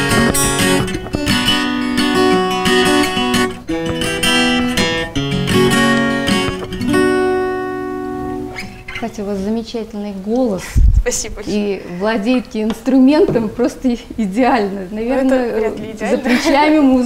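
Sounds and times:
acoustic guitar strumming: 0:00.0 - 0:09.2.

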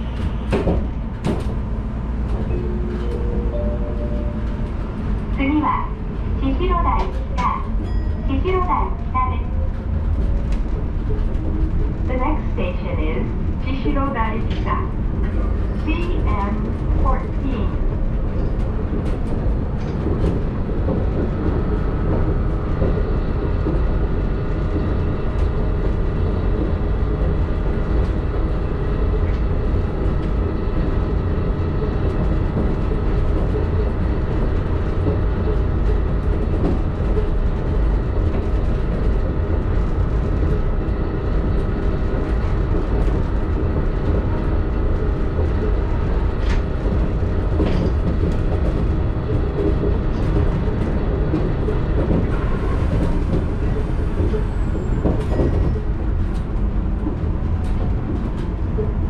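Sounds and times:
steady humming tones: 0:00.0 - 0:29.8
monorail car low rumble: 0:00.0 - 0:59.0.

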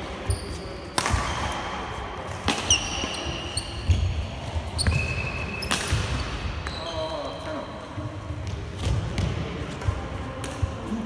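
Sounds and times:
shoes squeaking on floor: 0:00.3 - 0:00.8, 0:02.7 - 0:05.8
racket hitting shuttlecock: 0:00.8 - 0:06.7.

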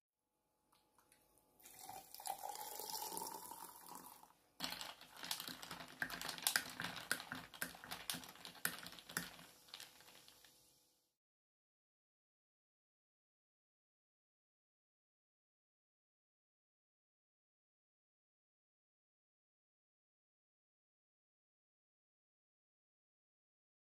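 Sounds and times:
liquid pouring over ice: 0:01.6 - 0:10.5.

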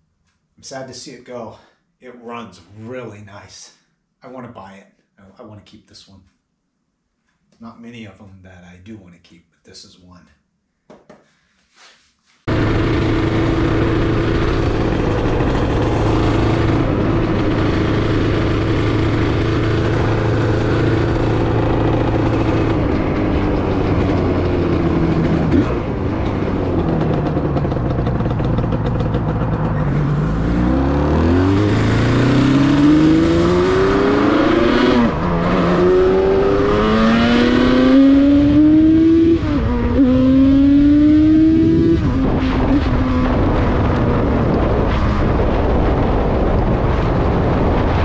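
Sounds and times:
motorcycle engine revving: 0:12.5 - 0:48.0.

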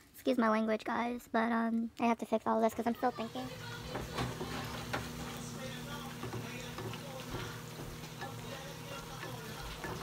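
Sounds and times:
eggs sizzling in a frying pan: 0:02.9 - 0:10.0
spatula scraping a pan: 0:03.5 - 0:10.0.

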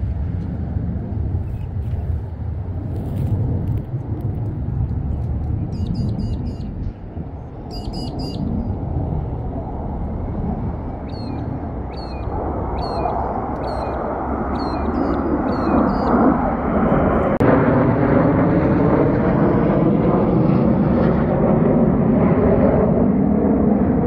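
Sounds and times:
distant rumble of military jets: 0:00.0 - 0:24.0
bird chirping: 0:05.7 - 0:06.7, 0:07.7 - 0:08.5, 0:11.0 - 0:16.2.

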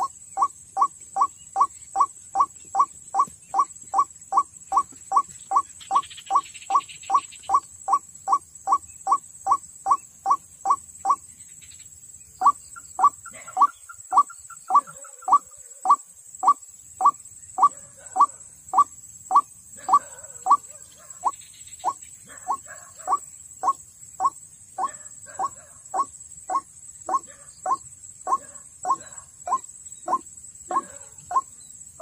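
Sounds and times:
waterhen calling: 0:00.0 - 0:11.2.

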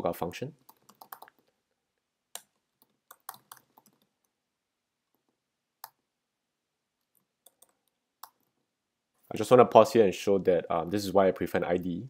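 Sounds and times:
computer keyboard keystrokes: 0:00.7 - 0:01.5, 0:02.4 - 0:04.1.

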